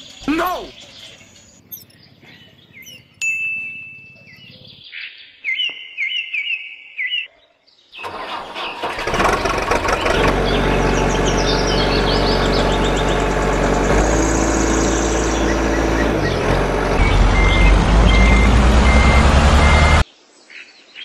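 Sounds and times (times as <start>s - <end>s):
small birds chirping: 0.0s - 8.9s, 9.9s - 21.0s
vehicle engine running: 8.1s - 20.0s.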